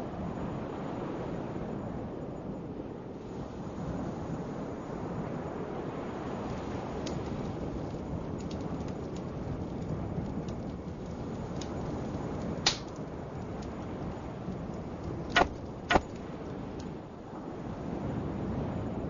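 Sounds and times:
sharp hits: 15.4 - 16.2.

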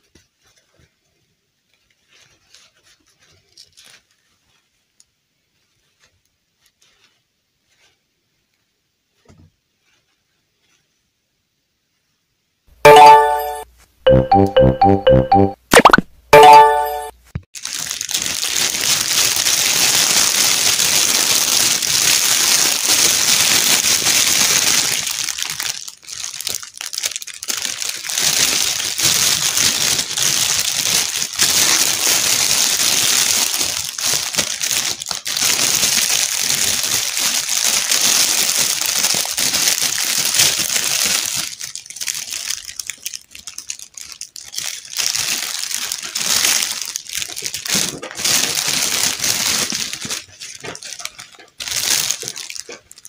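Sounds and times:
plastic bag crinkling: 1.6 - 8.0, 17.5 - 53.0
short musical jingle: 12.9 - 17.1.

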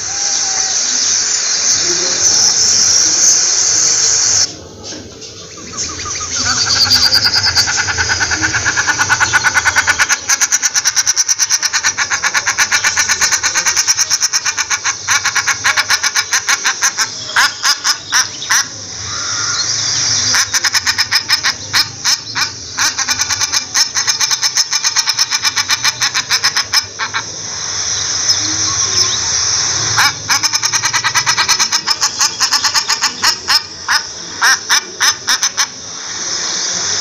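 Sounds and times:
shelduck calling: 5.6 - 27.7, 28.9 - 36.0.

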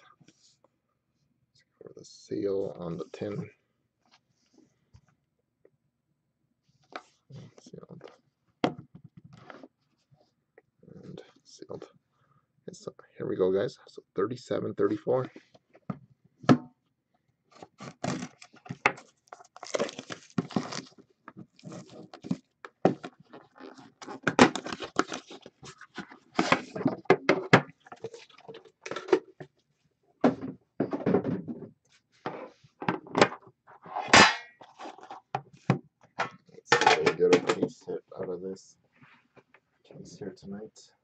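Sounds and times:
cardboard box ripping: 17.8 - 18.4, 19.6 - 20.9
packaging rustling: 17.8 - 26.9.

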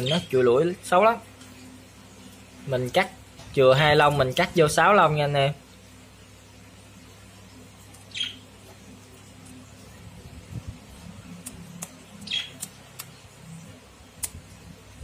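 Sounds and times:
budgerigar squawking: 8.1 - 8.4, 12.2 - 12.6.

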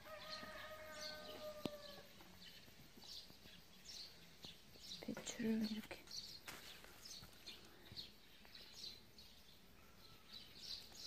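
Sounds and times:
faint rooster crow: 0.0 - 2.2
faint high bird chirps: 0.0 - 11.0.

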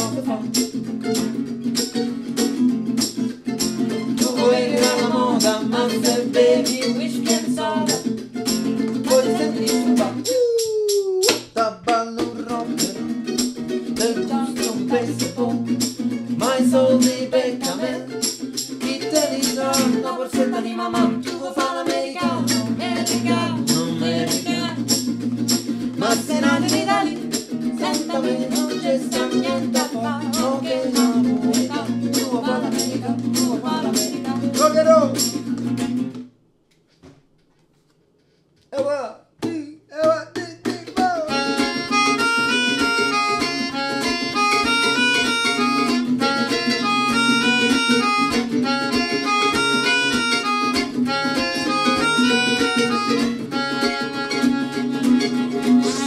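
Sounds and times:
man singing: 0.0 - 0.6, 4.2 - 8.2, 9.0 - 13.3, 14.0 - 15.8, 16.4 - 24.9, 26.0 - 35.2, 38.8 - 41.7
woman singing: 0.0 - 0.6, 4.2 - 8.2, 9.0 - 10.3, 14.0 - 15.8, 16.4 - 18.2, 18.8 - 25.0, 26.0 - 34.8
mandolin playing: 0.0 - 10.3, 12.0 - 36.2, 40.8 - 56.0
acoustic guitar strumming: 0.0 - 10.4, 11.3 - 36.3, 40.3 - 56.0
melodica melody: 3.5 - 10.2, 22.3 - 25.1, 26.0 - 35.4, 41.3 - 56.0.

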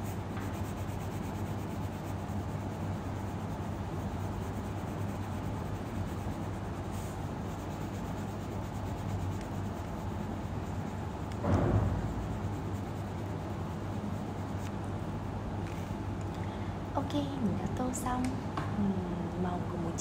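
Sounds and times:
colored pencil scratching on paper: 0.0 - 14.8
steady low hum: 0.0 - 20.0.

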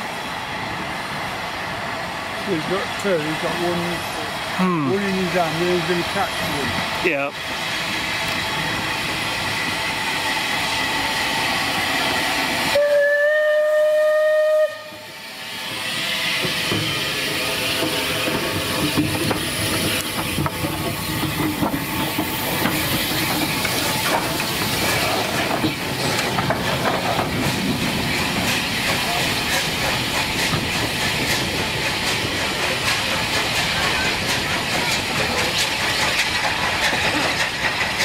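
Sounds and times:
steam hiss: 0.0 - 38.0
steam locomotive exhaust: 0.0 - 38.0
steam whistle blast: 12.7 - 15.2
clatter of wheels and rods: 28.2 - 38.0.

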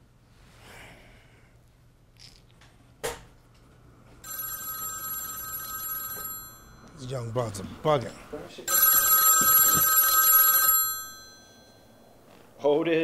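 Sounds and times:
electronic telephone ring: 4.2 - 7.2, 8.7 - 12.4.

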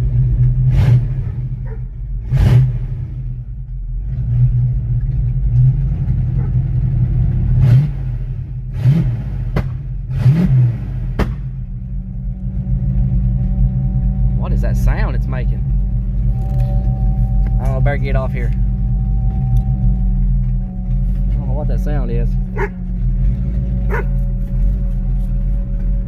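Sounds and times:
car engine idling and revving: 0.0 - 26.0.

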